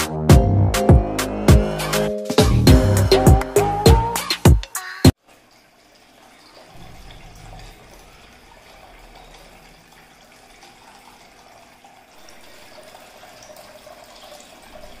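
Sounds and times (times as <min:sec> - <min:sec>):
fountain water trickling: 0:05.2 - 0:15.0.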